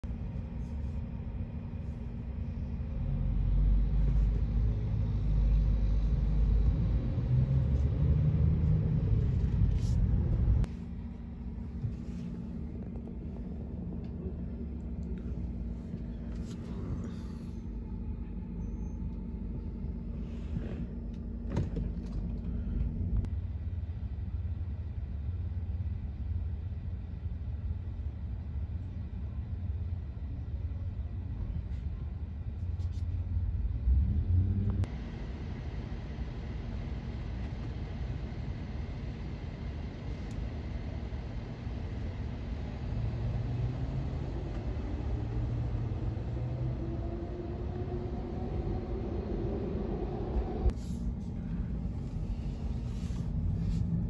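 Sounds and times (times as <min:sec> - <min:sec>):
road noise: 0:00.0 - 0:29.0, 0:32.4 - 0:35.5, 0:41.3 - 0:54.0
car engine rumble inside car: 0:00.0 - 0:54.0.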